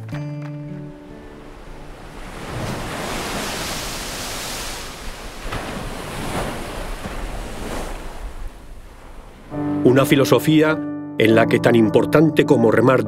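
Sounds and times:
ocean surf crashing: 0.8s - 10.3s.

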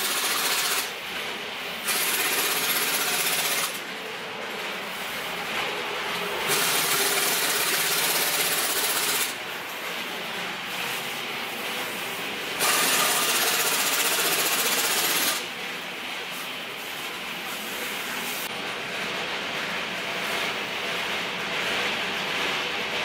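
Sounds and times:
impact wrench hammering: 12.6s - 15.4s.

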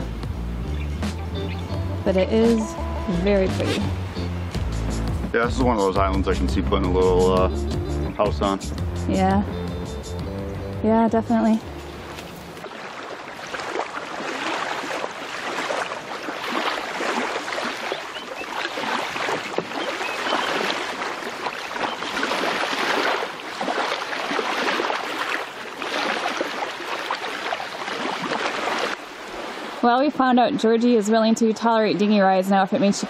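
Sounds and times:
small waves lapping on a beach: 11.4s - 33.0s.

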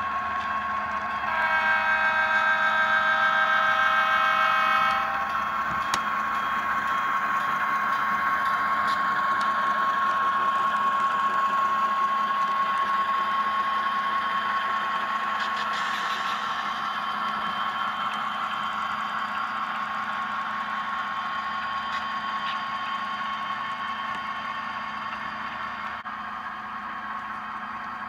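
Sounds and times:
diesel engine running: 0.0s - 2.8s, 4.0s - 28.0s
diesel air horn: 1.1s - 6.1s.

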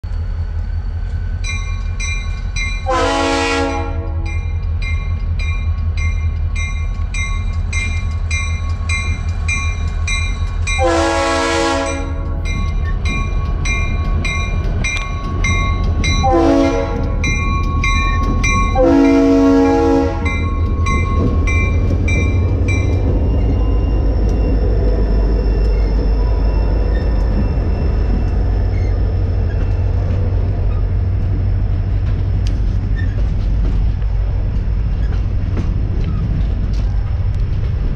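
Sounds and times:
locomotive air horn: 2.8s - 4.3s, 10.8s - 12.4s, 16.2s - 17.2s, 18.8s - 20.3s.

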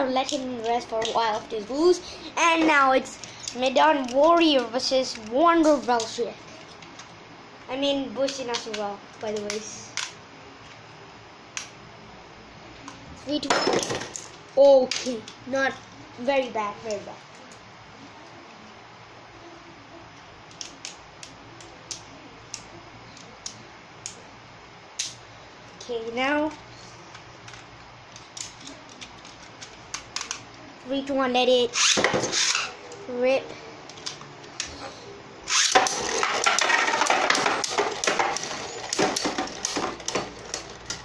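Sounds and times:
faint steady hiss: 0.0s - 41.0s
plastic clicks: 20.5s - 24.2s
spinning tops whirring and scraping: 31.6s - 33.0s, 35.4s - 41.0s
spinning tops clacking: 35.5s - 41.0s.

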